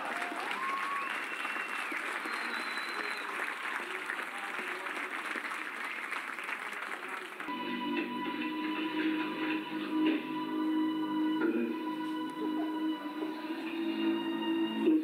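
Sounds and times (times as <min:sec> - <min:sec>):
audience applauding: 0:00.0 - 0:10.8
music: 0:07.5 - 0:15.0.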